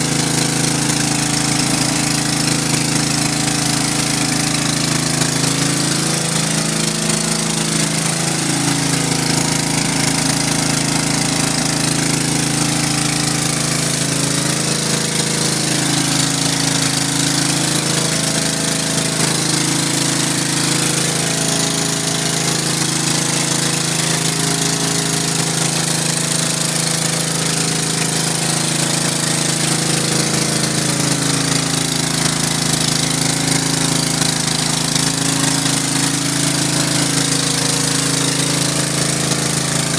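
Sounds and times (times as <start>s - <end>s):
pressure washer engine running: 0.0s - 39.9s
water spraying onto concrete: 0.0s - 39.9s.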